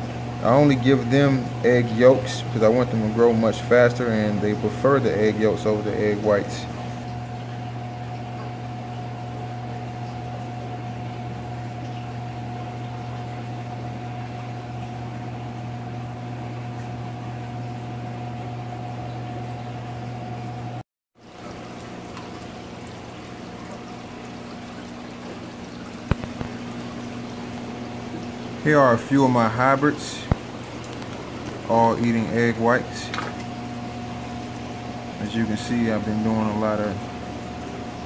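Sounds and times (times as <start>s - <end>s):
aquarium equipment hum: 0.0s - 38.0s
water bubbling: 21.3s - 38.0s.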